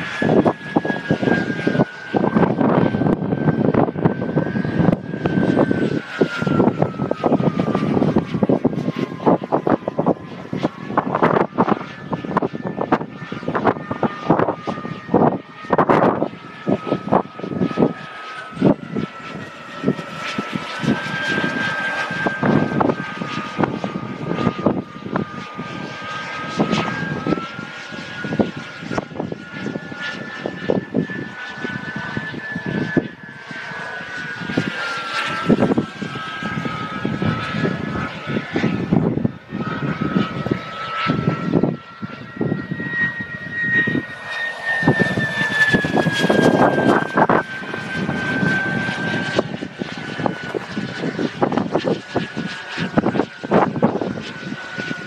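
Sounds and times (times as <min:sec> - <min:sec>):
model jet engines whining: 0:00.0 - 0:55.0
wind gusts on microphone: 0:00.0 - 0:55.0.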